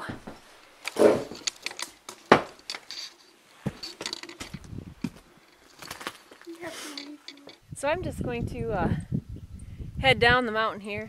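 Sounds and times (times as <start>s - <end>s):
footsteps: 0.0s - 7.6s.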